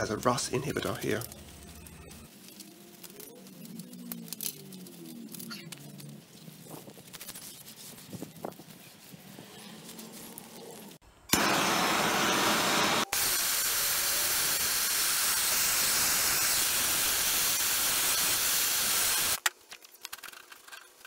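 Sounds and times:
gas torch flame hissing: 0:11.3 - 0:19.4.

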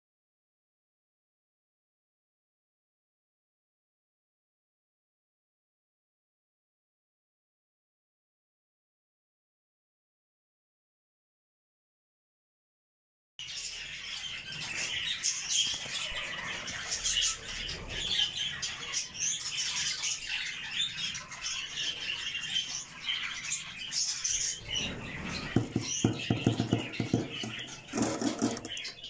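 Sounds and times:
budgerigars chattering: 0:13.4 - 0:29.0.

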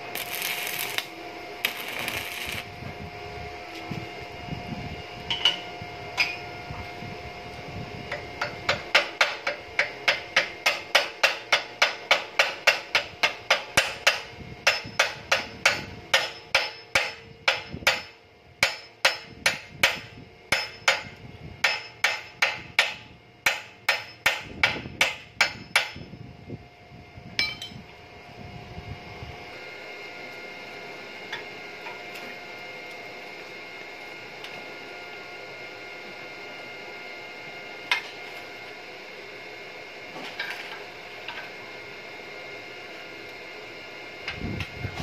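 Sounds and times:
steady hum: 0:00.0 - 0:45.0
hammer ringing on anvil: 0:06.2 - 0:06.4, 0:08.4 - 0:26.1, 0:27.4 - 0:27.8.

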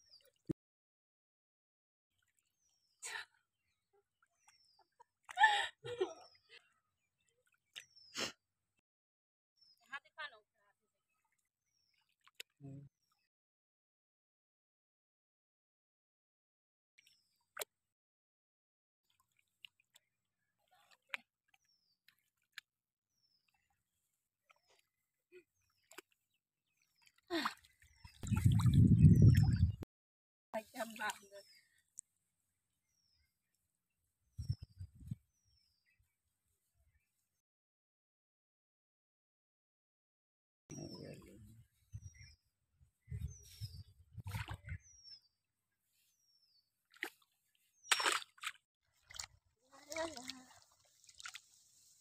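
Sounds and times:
splashy rustles in mud: 0:47.9 - 0:52.0.

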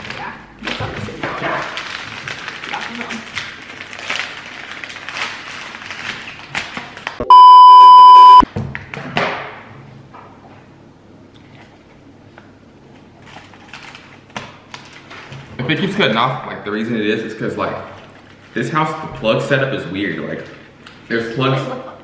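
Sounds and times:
plastic wrapper crinkling: 0:01.4 - 0:07.2, 0:13.2 - 0:15.9, 0:17.6 - 0:18.8
censor bleep: 0:07.2 - 0:08.4.

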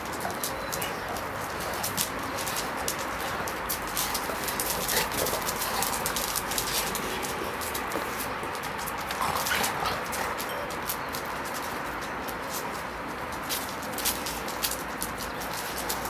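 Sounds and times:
dogs whining: 0:00.0 - 0:11.4
paws scuffing on concrete: 0:00.0 - 0:16.0.

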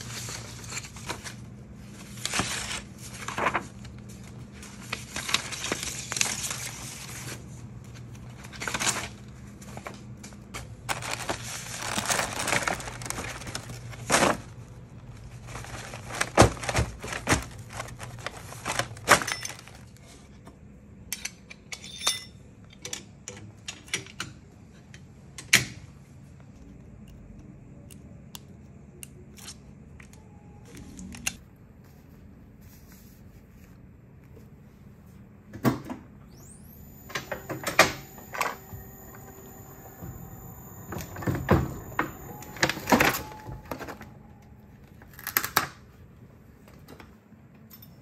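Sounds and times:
paper rustling and tearing: 0:00.0 - 0:10.0, 0:10.6 - 0:19.8.

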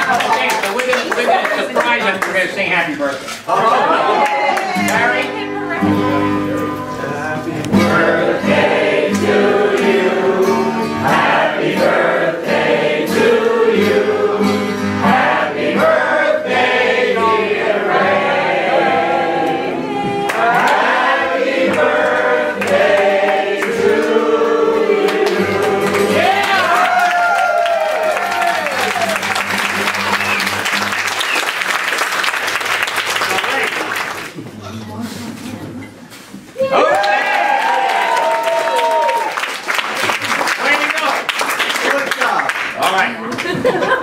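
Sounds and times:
acoustic guitar: 0:02.8 - 0:36.6
group of voices singing along: 0:07.5 - 0:26.4.

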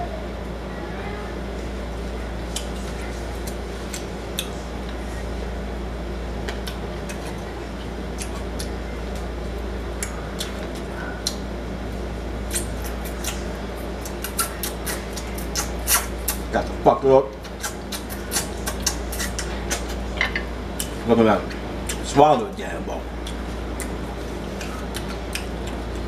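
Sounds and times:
steady low hum: 0:00.0 - 0:26.0
chewing: 0:02.5 - 0:05.0, 0:06.5 - 0:09.3, 0:10.0 - 0:11.4, 0:12.5 - 0:16.5, 0:17.4 - 0:20.1, 0:21.8 - 0:22.1, 0:23.2 - 0:26.0.

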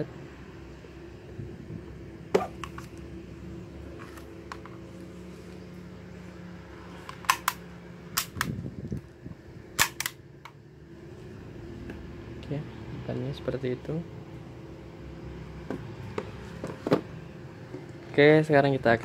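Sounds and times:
plastic pistol clicks and knocks: 0:07.1 - 0:07.6, 0:08.2 - 0:08.5, 0:09.8 - 0:10.6.

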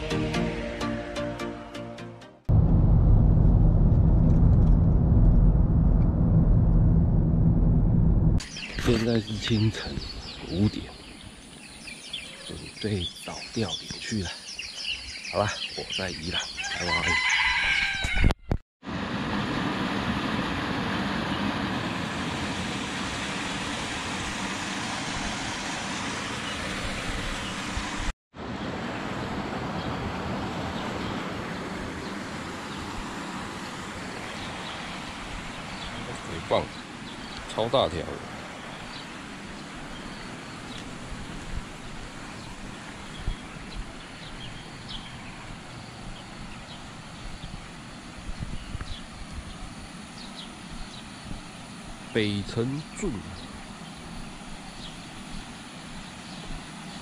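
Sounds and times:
bird chirps: 0:08.4 - 0:16.8
steady outdoor hiss: 0:08.4 - 0:17.7, 0:18.9 - 0:57.0.

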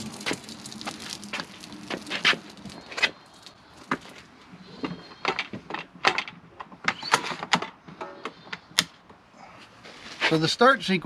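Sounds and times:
generator rolled over concrete: 0:00.0 - 0:08.7.

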